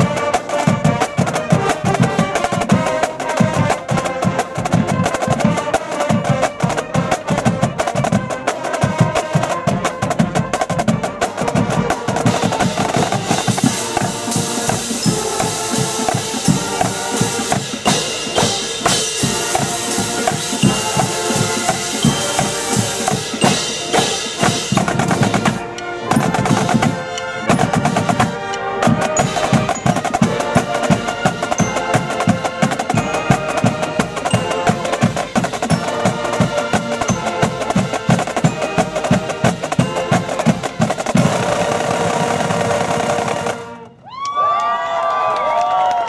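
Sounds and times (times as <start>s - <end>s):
brass and saxophones playing: 0.0s - 44.0s
marching drumline: 0.0s - 44.6s.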